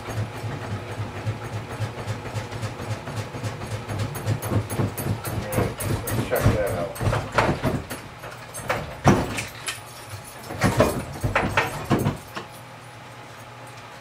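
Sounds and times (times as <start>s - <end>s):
knocks and clatter of handling: 3.1s - 12.6s.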